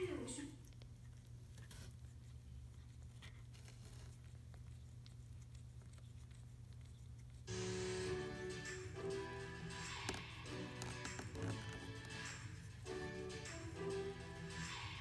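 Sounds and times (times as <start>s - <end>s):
music: 7.5s - 15.0s.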